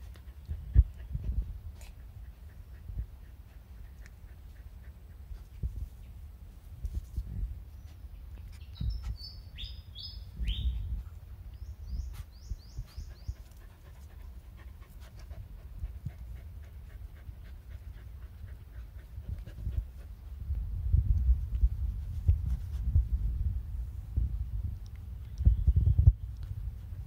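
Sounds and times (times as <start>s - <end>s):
dog panting: 0.0s - 5.8s, 12.8s - 20.4s
small bird chirping: 7.8s - 13.6s, 25.2s - 26.5s.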